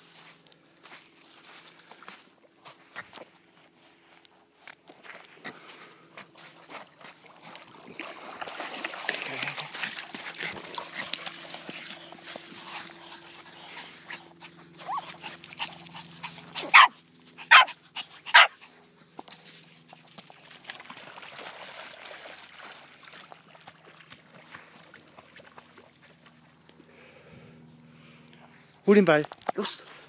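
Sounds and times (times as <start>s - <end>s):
small dog barking: 14.8s - 15.2s, 16.6s - 18.6s.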